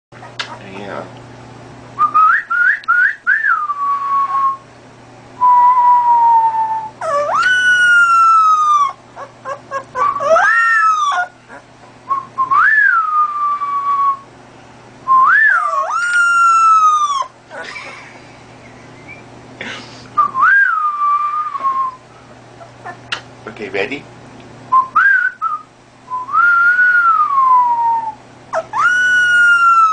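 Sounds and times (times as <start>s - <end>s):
puppy howling: 5.8s - 11.7s, 15.3s - 17.8s, 22.6s - 23.1s, 27.1s - 29.9s.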